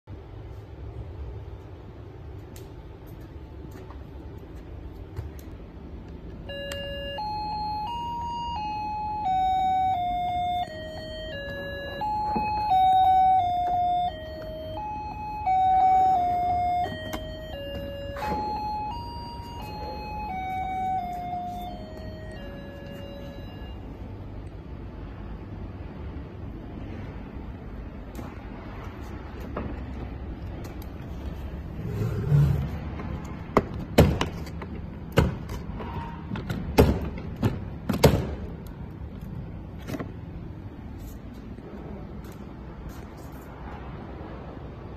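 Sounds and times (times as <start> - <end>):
electronic beeping tune: 6.5 - 23.9.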